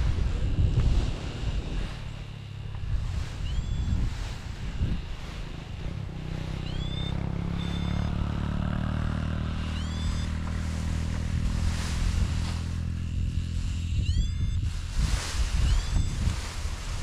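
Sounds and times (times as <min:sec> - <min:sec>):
motor engine humming: 0:00.0 - 0:17.0
short rising chirps: 0:03.0 - 0:11.0, 0:13.6 - 0:14.7, 0:15.4 - 0:16.6.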